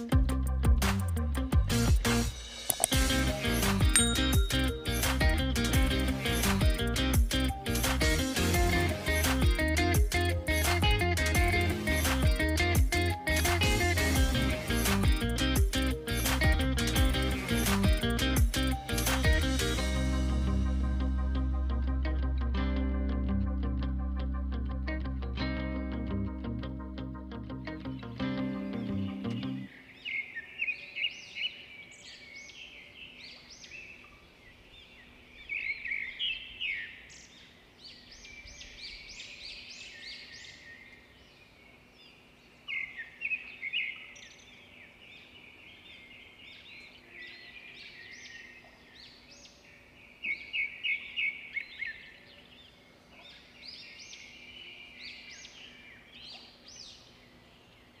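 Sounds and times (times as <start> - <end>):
small birds chirping: 27.7 - 58.0.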